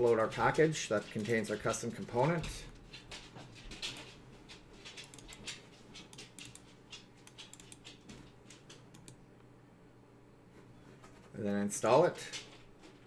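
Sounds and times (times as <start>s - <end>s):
low steady hum: 0.0s - 13.0s
mouse and keyboard clicks: 5.0s - 8.0s, 8.9s - 9.2s.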